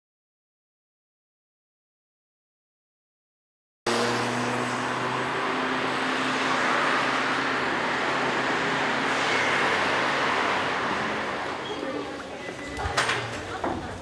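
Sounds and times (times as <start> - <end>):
passing vehicles: 3.9 - 14.0
vehicle engine hum: 3.9 - 14.0.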